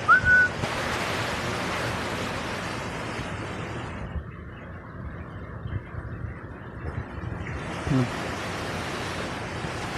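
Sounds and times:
high whistle-like note: 0.1s - 0.6s.

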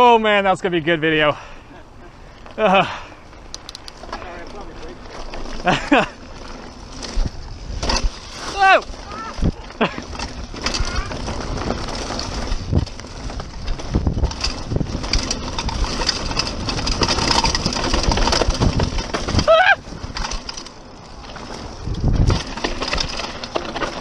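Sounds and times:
bike rattling over bumps: 0.0s - 24.0s
tyres crunching over dirt: 2.4s - 24.0s
wind on microphone: 6.9s - 20.4s, 21.5s - 22.6s.

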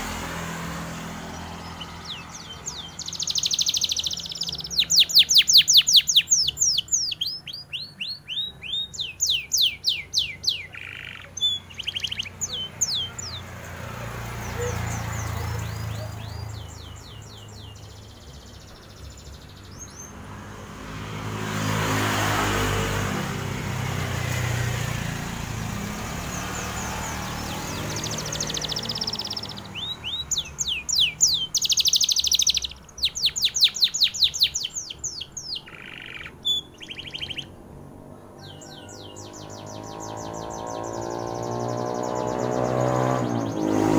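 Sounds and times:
canary singing trills: 0.0s - 23.1s, 23.7s - 43.9s
vehicle passing: 0.0s - 43.9s.

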